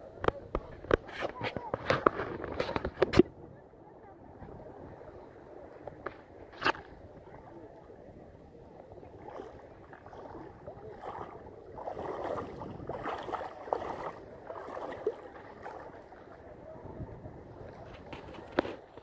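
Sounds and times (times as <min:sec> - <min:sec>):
seawater sloshing and splashing: 0:09.1 - 0:16.5.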